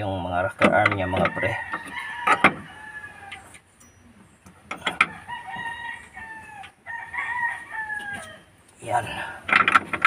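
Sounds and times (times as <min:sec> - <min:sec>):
rooster crowing: 0:01.3 - 0:03.5, 0:05.0 - 0:08.5.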